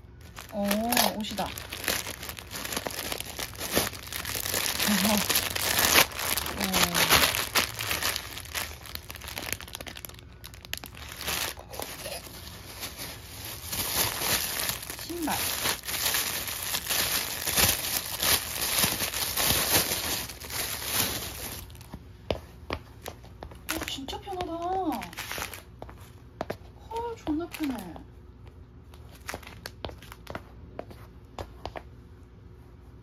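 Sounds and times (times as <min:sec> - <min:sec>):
plastic bags crinkling: 0:00.0 - 0:21.9, 0:23.7 - 0:25.8, 0:27.5 - 0:27.9, 0:29.0 - 0:30.3.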